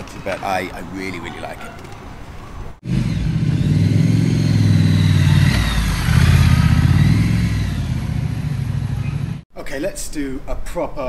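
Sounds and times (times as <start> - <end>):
motorcycle engine running: 2.8 - 9.4.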